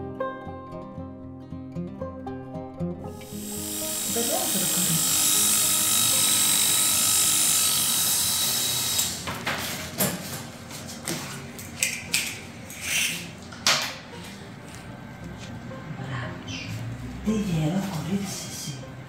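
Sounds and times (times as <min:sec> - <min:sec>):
electric hair clippers buzzing: 0:03.2 - 0:09.8.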